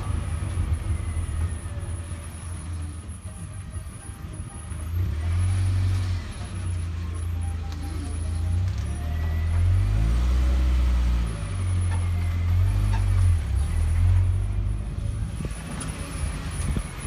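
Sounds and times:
wind buffeting microphone: 15.2 - 17.0.

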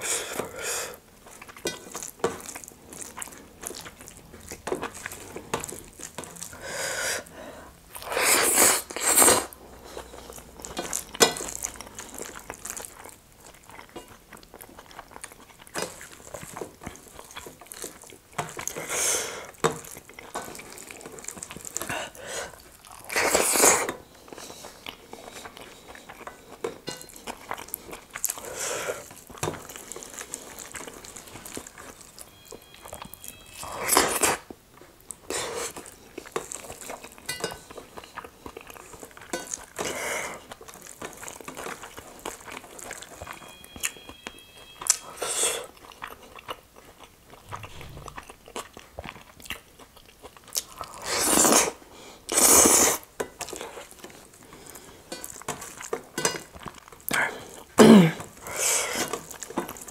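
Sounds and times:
chewing and mouth sounds: 0.0 - 6.6, 7.9 - 59.9.

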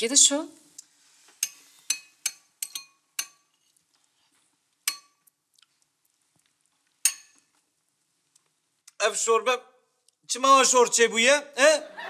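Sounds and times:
metal spoon clinking against bowl: 1.4 - 3.6, 4.9 - 5.2, 7.0 - 7.5.

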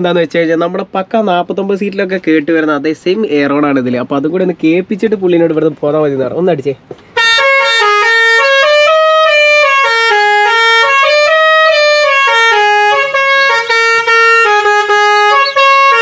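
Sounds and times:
musical air horn playing a tune: 7.2 - 16.0.

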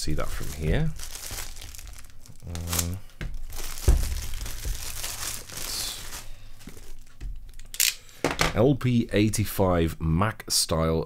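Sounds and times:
plastic wrap crinkling and tearing: 0.0 - 7.7
dull thump: 3.2 - 4.9.

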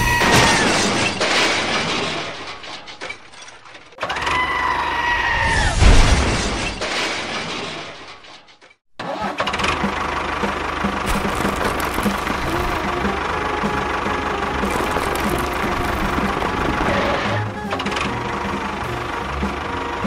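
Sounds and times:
crash-like noise: 5.6 - 8.3
small engine running: 9.4 - 20.0.

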